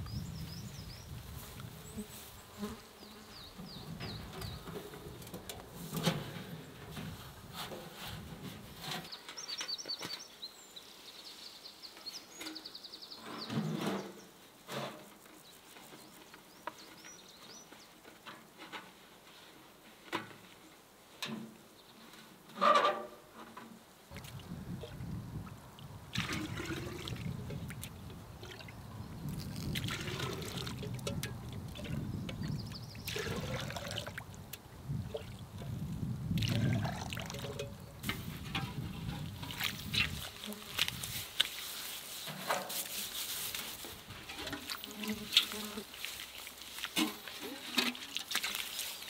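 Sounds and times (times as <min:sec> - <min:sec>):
water splashing into bucket: 0:25.8 - 0:35.7, 0:36.3 - 0:41.7, 0:44.3 - 0:49.0.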